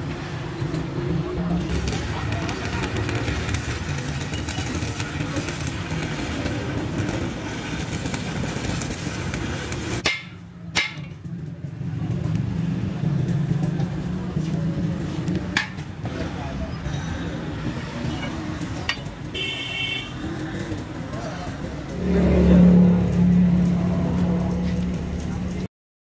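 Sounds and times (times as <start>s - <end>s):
arc welding crackle: 1.7s - 10.2s, 18.4s - 25.6s
hammer striking metal: 10.0s - 11.2s, 15.6s - 15.9s, 18.8s - 19.1s.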